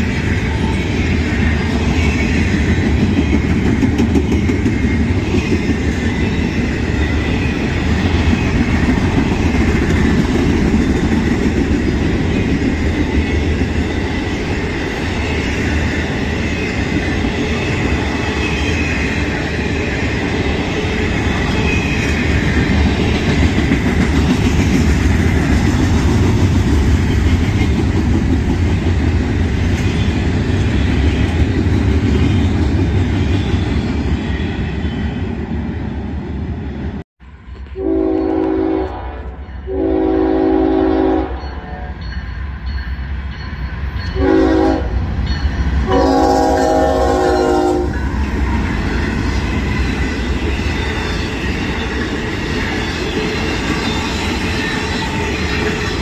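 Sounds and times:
freight train wheels rumbling: 0.0s - 56.0s
locomotive air horn blasts: 37.8s - 42.0s, 44.2s - 45.0s, 45.8s - 48.0s.

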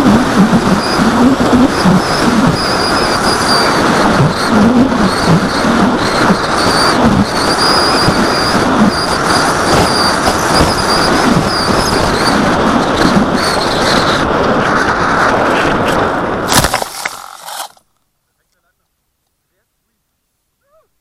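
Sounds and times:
electric motor high whine: 0.0s - 14.2s, 16.5s - 17.8s
wind rush on microphone: 0.0s - 16.6s.

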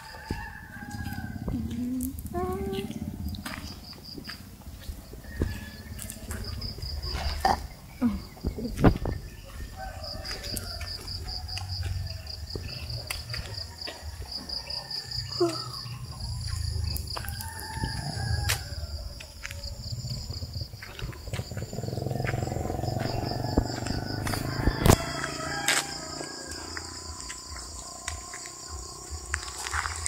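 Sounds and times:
insects trilling: 0.0s - 30.0s
low rumble: 1.1s - 9.8s.

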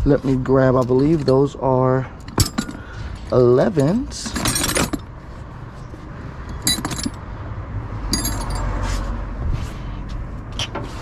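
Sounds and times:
metal hand tools clinking: 8.1s - 8.7s.

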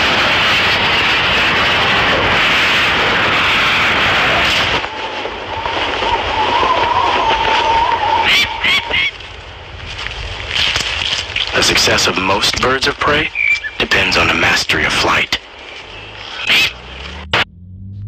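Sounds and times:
rushing wind of a diving bird: 0.0s - 11.6s
short squeaky bird calls: 13.3s - 13.8s.

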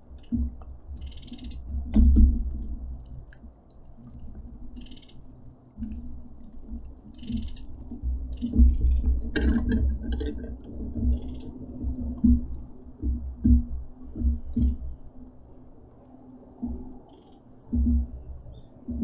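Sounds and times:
knocks and thumps on wooden frame: 11.9s - 14.9s, 17.7s - 18.1s.

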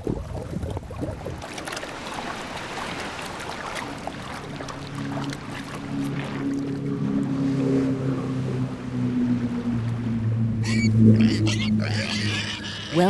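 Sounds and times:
small water drips: 0.0s - 7.3s
seawater splashing and lapping: 0.0s - 13.0s.

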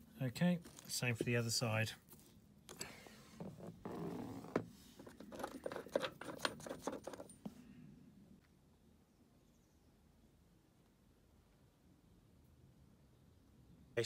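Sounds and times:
metal clicks and scrapes: 5.0s - 7.4s.

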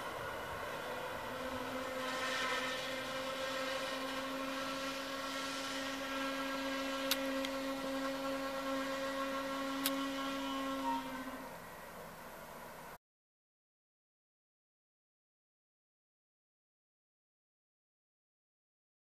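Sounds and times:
diesel railcar engine drone: 0.0s - 13.0s.

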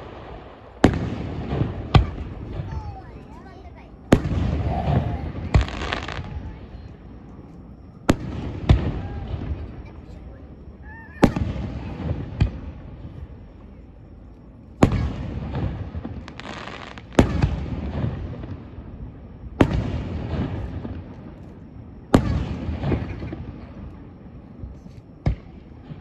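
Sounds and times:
firework shells booming: 4.1s - 6.4s
rumbling echo: 4.2s - 6.4s.

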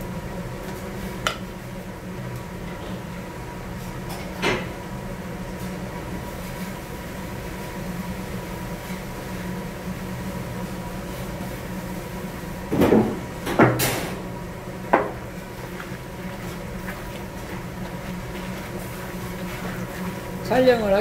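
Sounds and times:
low kitchen hum: 0.0s - 21.0s
wooden spatula scraping a wok: 15.4s - 21.0s.

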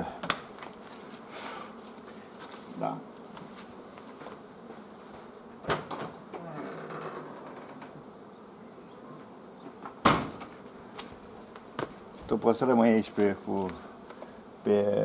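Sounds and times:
honey bees buzzing: 0.0s - 15.0s
sharp knock: 10.0s - 10.5s.

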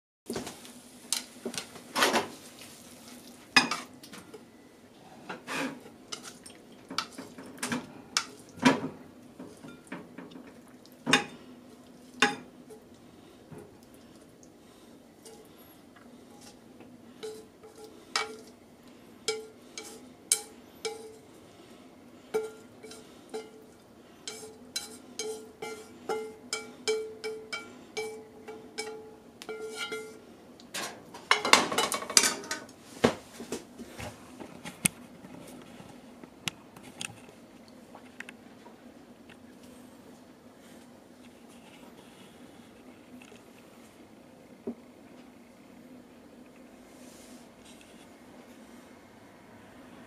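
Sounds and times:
utensil scraping frying pan: 5.3s - 8.4s, 17.2s - 18.6s, 19.2s - 21.3s, 22.3s - 30.2s
utensil tapping frying pan: 17.2s - 18.6s, 19.3s - 21.2s, 24.3s - 30.2s.

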